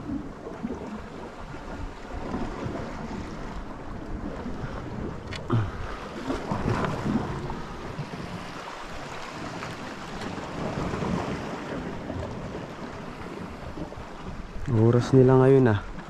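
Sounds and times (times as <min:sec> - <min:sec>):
sea water washing around boat: 0:00.0 - 0:16.0
wind buffeting microphone: 0:00.0 - 0:16.0.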